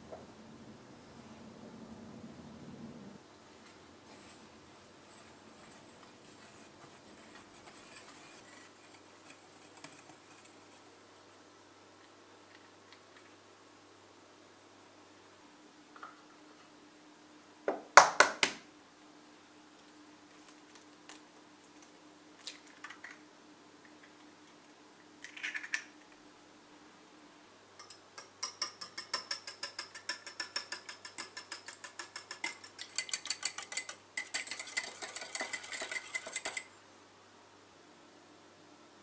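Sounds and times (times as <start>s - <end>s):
whisk clicking against bowl: 27.8s - 36.7s.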